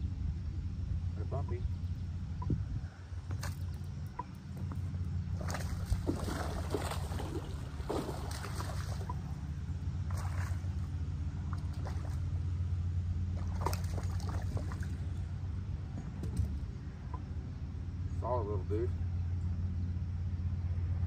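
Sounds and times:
steady low hum: 0.0s - 21.0s
water splashing and sloshing: 3.2s - 17.3s.

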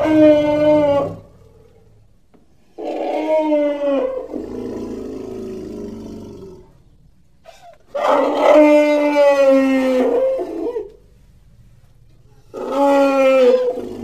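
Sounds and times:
elephant calling: 0.0s - 1.6s, 12.4s - 14.0s.

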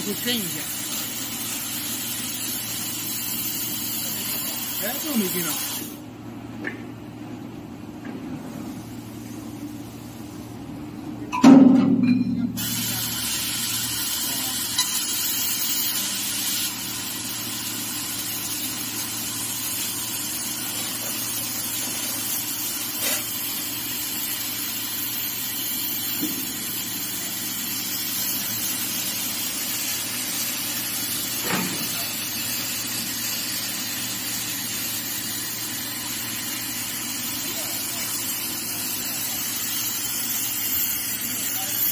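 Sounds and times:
high hiss of laser cutting: 0.0s - 6.0s, 12.6s - 41.9s
ringing metallic clang: 11.3s - 12.6s.

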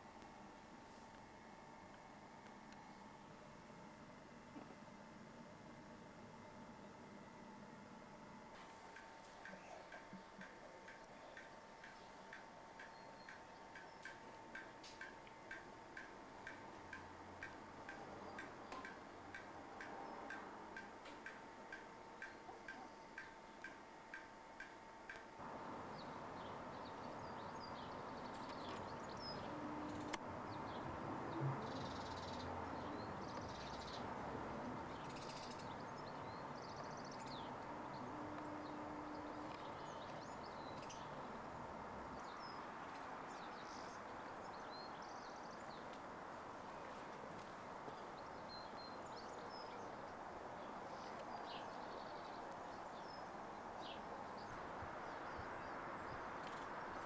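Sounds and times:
background hiss: 0.0s - 57.0s
birds chirping: 8.6s - 57.0s
pendulum wall clock ticking: 8.9s - 25.3s.

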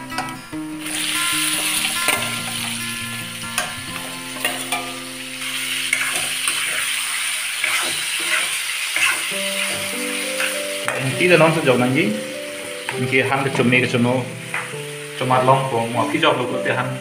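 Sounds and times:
chicken sizzling in hot oil: 0.0s - 17.0s
metal spoon scraping pan: 0.2s - 11.0s.

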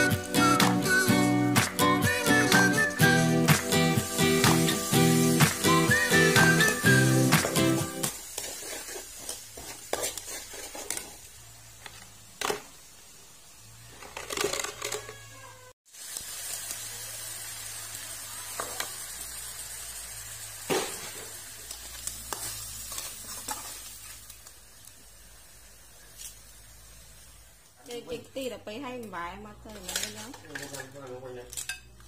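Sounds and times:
oil sizzling in a wok: 0.0s - 31.7s
metal spatula scraping a wok: 8.2s - 11.3s.

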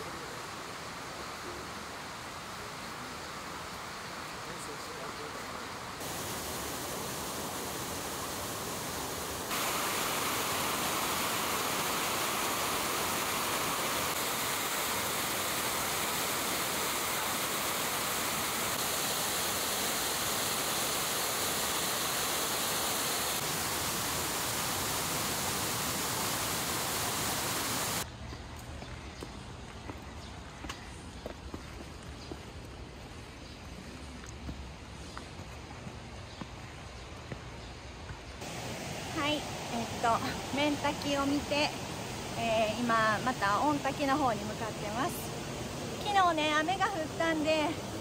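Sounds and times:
waterfall rushing: 0.0s - 28.0s, 38.4s - 48.0s.

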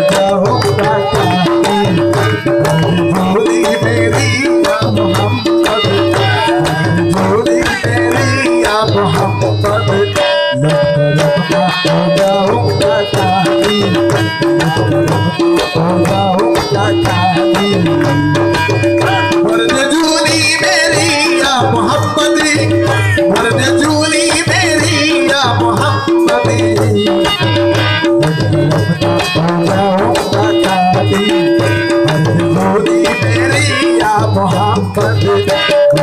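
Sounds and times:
harmonium chords: 0.0s - 36.0s
man singing: 0.0s - 36.0s
tabla playing fast rhythm: 0.0s - 36.0s.

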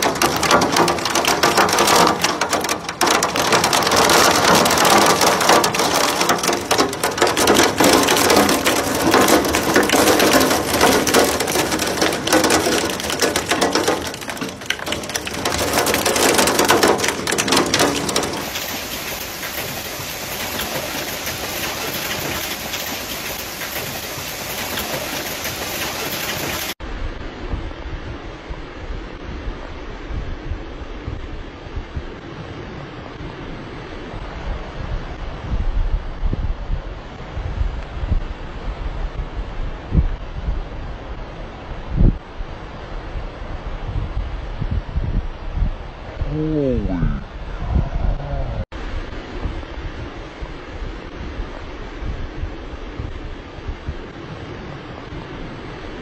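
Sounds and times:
heavy rain lashing against glass: 0.0s - 26.8s
rain and hail falling: 0.0s - 26.8s.

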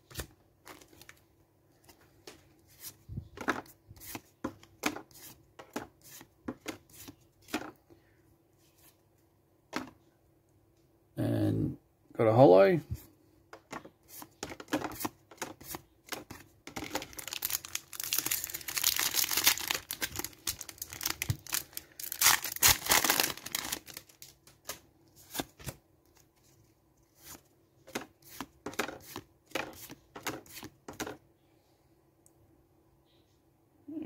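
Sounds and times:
foil wrapper tearing and crinkling: 16.8s - 24.6s.

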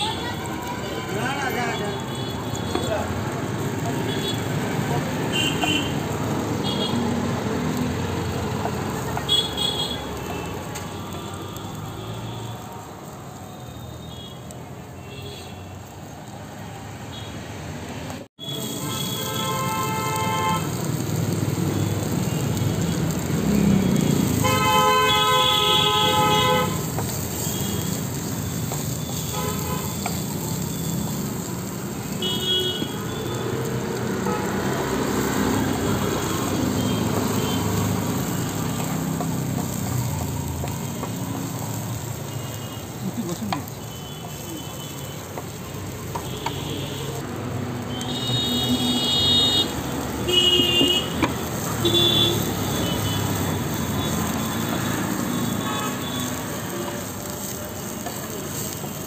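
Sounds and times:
vehicle horns honking: 0.0s - 3.2s, 3.9s - 7.1s, 9.0s - 12.6s, 18.4s - 20.9s, 23.5s - 31.3s, 32.0s - 39.9s, 42.2s - 47.2s, 47.9s - 57.2s
road traffic hum: 0.0s - 59.0s.

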